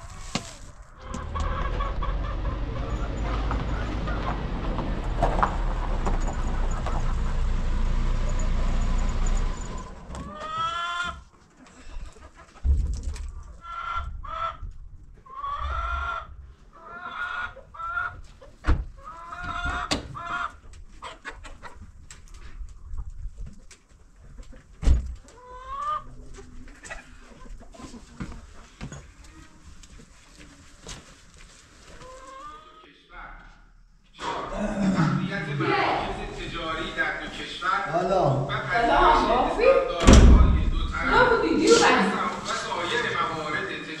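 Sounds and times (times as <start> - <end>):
chickens clucking: 0.0 - 7.6, 9.8 - 30.7, 31.9 - 32.9.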